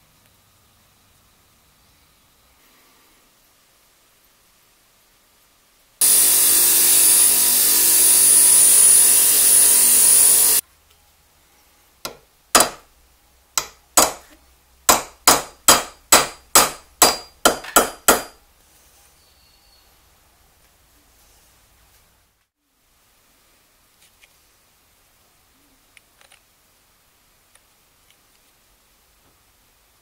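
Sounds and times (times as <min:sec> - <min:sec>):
machine whining: 0:06.0 - 0:10.6
hammer tapping on steel anvil: 0:12.0 - 0:12.8, 0:13.6 - 0:18.4.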